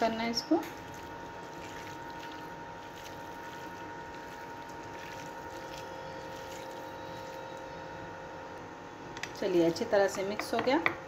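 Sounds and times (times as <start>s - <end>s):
hands squelching meat in marinade: 0.0s - 8.1s
steady background hum: 0.0s - 11.0s.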